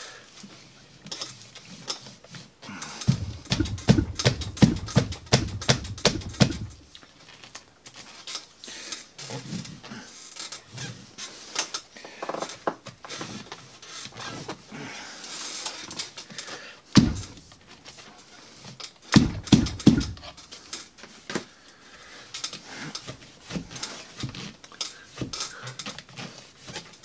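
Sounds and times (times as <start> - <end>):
mesh handling taps: 3.1 - 6.8, 19.1 - 20.4
thumps on mesh pocket: 3.1 - 6.8.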